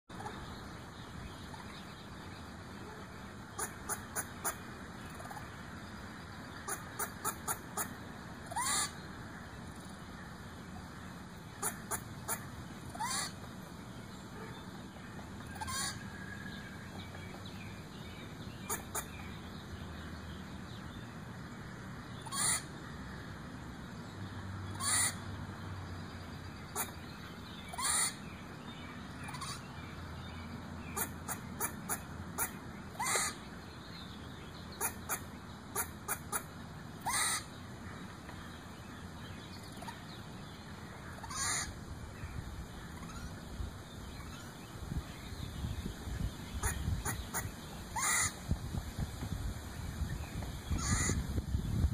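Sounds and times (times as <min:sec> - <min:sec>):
squirrel barking calls: 0:00.1 - 0:00.5, 0:02.7 - 0:05.5, 0:06.6 - 0:09.0, 0:11.4 - 0:13.5, 0:14.3 - 0:16.3, 0:18.6 - 0:19.3, 0:22.2 - 0:22.8, 0:24.7 - 0:25.3, 0:26.7 - 0:28.2, 0:29.1 - 0:29.7, 0:30.9 - 0:33.5, 0:34.6 - 0:38.0, 0:39.6 - 0:40.3, 0:41.0 - 0:41.8, 0:46.5 - 0:48.4, 0:50.7 - 0:51.2.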